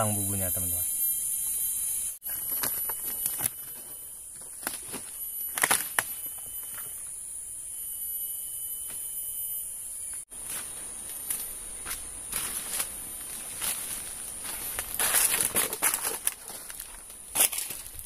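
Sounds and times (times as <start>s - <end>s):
high buzz of insects: 0.0s - 18.0s
footsteps on dry branches and leaves: 10.3s - 18.0s.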